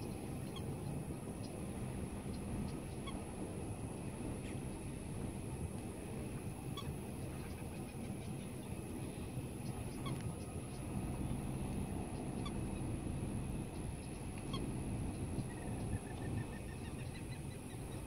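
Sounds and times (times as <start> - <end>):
low rumble: 9.0 - 18.0.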